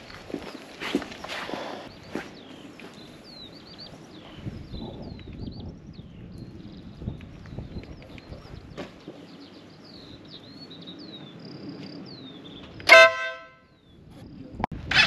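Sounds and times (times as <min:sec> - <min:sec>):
small birds chirping: 0:00.0 - 0:13.1
outdoor background noise: 0:00.0 - 0:15.0
loud blaring tone: 0:12.9 - 0:13.6.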